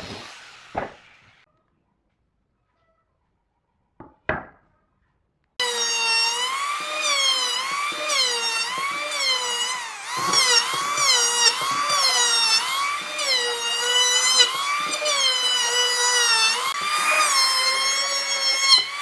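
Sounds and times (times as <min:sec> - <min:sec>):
electric planer motor whine: 0:05.6 - 0:19.0.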